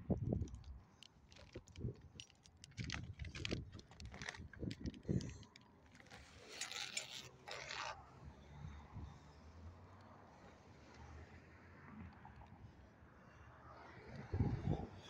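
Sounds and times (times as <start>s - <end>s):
bicycle rattling over pavement: 0.3s - 8.0s.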